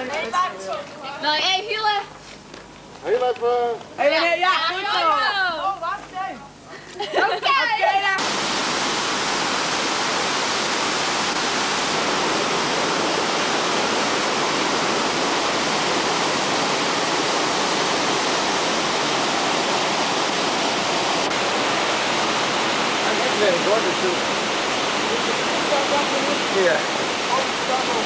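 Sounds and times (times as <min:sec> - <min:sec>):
waterfall rushing: 0:08.1 - 0:28.0.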